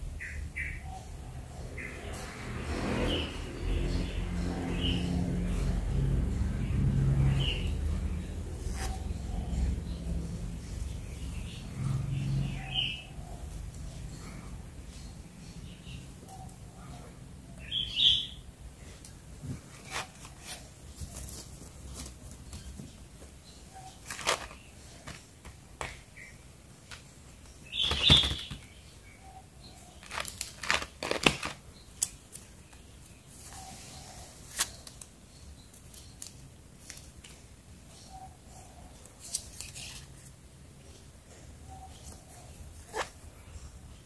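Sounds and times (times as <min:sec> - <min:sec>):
plastic packaging crinkling: 0:24.0 - 0:25.2, 0:30.0 - 0:31.7.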